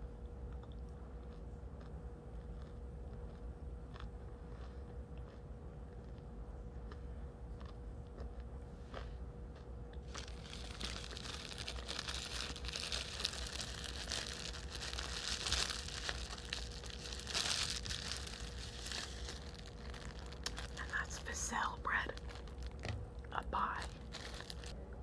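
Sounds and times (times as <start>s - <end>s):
plastic bag crinkling: 10.0s - 23.0s, 23.6s - 24.8s.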